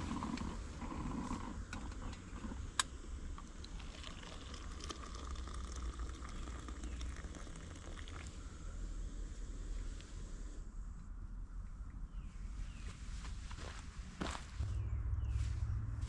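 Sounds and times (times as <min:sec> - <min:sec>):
coffee pouring into a mug: 0:03.3 - 0:08.5.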